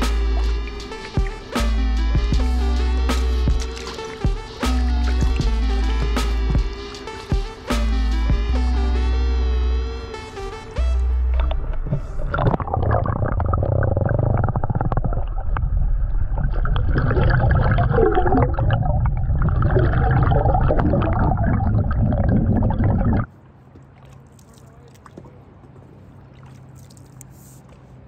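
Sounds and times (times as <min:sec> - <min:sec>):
paddle moving through water: 0:03.4 - 0:05.5, 0:23.2 - 0:28.0
underwater gurgling and bubbling: 0:11.2 - 0:23.3.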